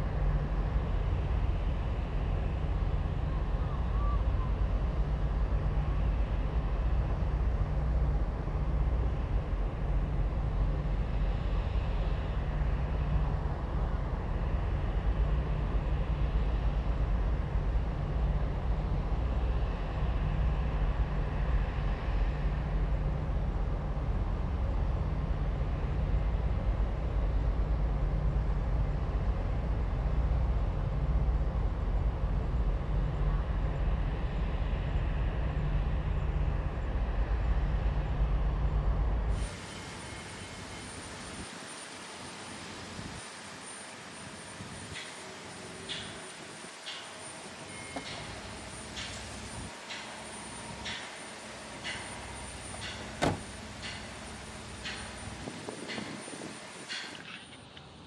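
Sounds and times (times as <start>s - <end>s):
low outdoor rumble: 0.0s - 39.4s.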